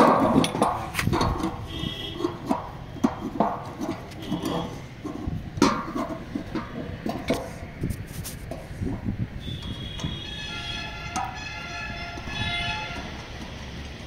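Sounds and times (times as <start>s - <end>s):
metal bracket clicks and knocks: 0.0s - 7.6s, 11.0s - 14.0s.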